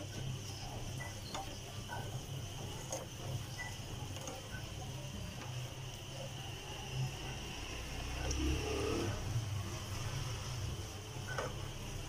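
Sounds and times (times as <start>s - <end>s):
spatula scraping a pan: 0.0s - 6.3s.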